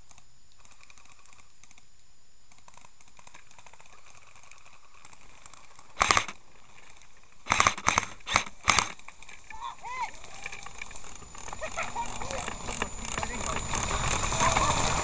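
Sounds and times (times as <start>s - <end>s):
loud sharp burst: 6.0s - 6.4s, 7.4s - 9.0s.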